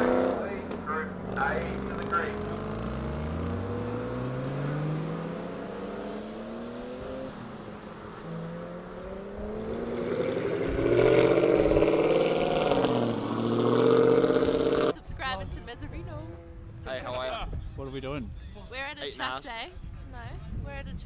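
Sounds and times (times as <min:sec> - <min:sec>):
sports car engines accelerating: 0:00.0 - 0:17.2.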